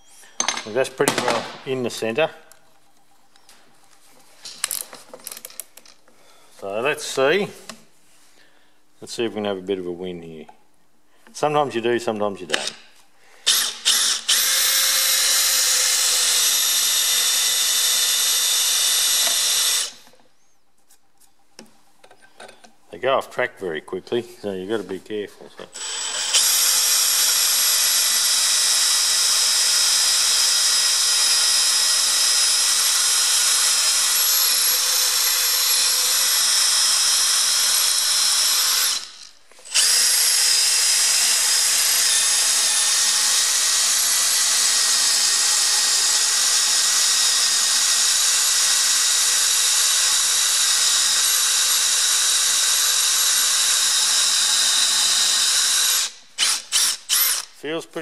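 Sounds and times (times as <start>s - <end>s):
power drill drilling into steel: 13.4s - 20.1s, 25.7s - 57.5s.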